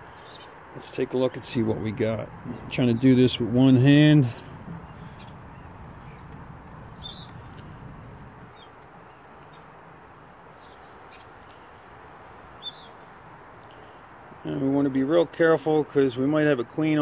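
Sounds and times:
honeybees humming: 0:01.2 - 0:09.8.

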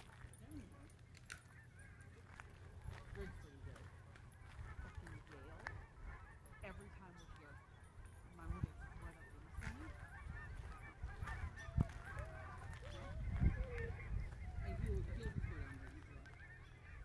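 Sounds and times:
geese honking: 0:00.0 - 0:17.0.

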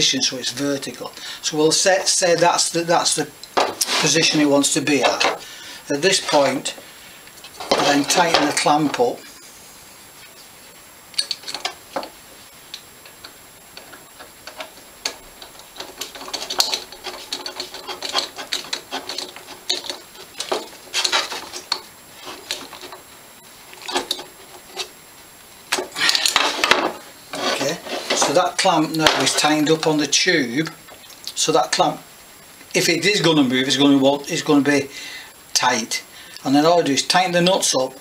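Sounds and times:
metal clattering: 0:13.8 - 0:23.0.

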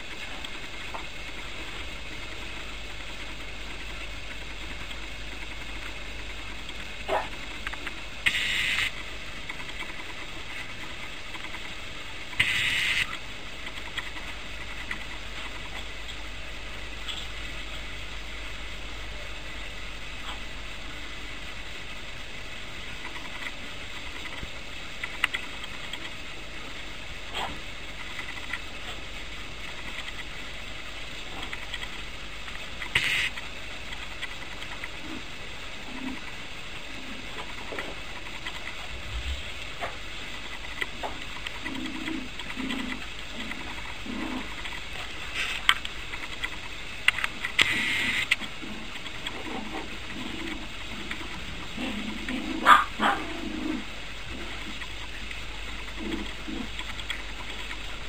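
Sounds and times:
steady background hiss: 0:00.0 - 0:58.0
puppies growling: 0:06.5 - 0:08.0, 0:27.3 - 0:29.1, 0:34.2 - 0:46.8, 0:47.4 - 0:58.0.

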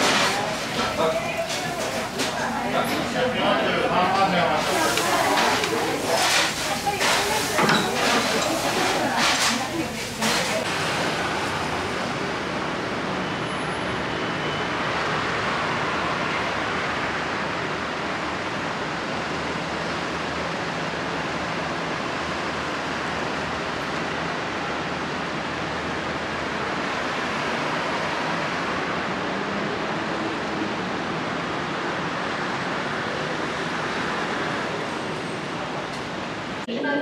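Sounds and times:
road traffic rush: 0:00.0 - 0:36.7
wind: 0:10.6 - 0:36.8.

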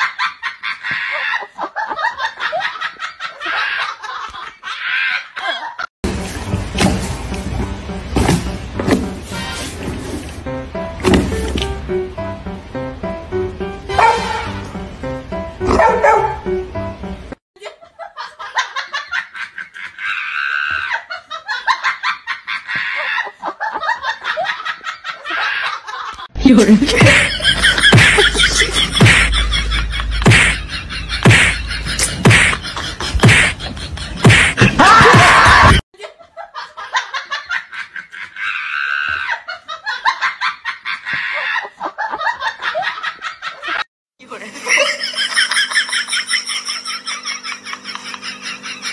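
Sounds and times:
person laughing hard: 0:00.0 - 0:05.9, 0:17.6 - 0:48.9.

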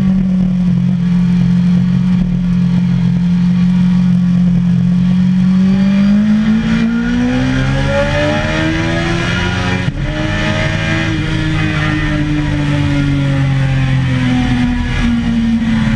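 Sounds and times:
motorcycle engine accelerating: 0:00.0 - 0:15.9
wind rushing: 0:07.4 - 0:11.1.

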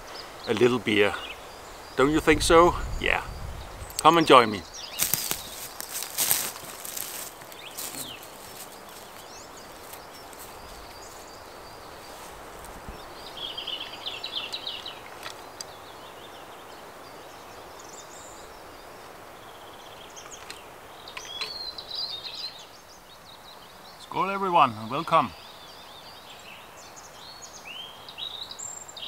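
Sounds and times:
small birds chirping: 0:00.0 - 0:29.0
wind rustling through trees: 0:00.0 - 0:29.0.

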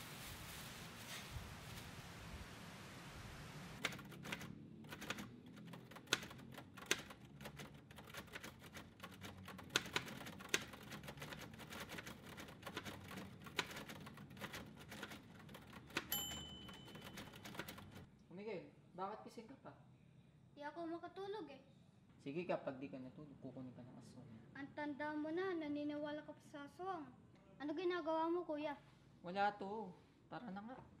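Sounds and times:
typewriter keys clacking: 0:03.8 - 0:18.1
short ringing tone: 0:16.1 - 0:17.3.

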